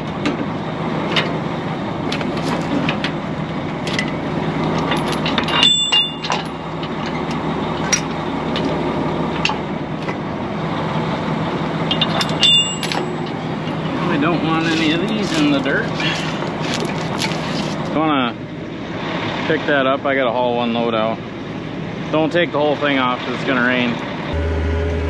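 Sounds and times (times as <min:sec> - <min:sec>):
truck diesel engine idling: 0:00.0 - 0:25.0.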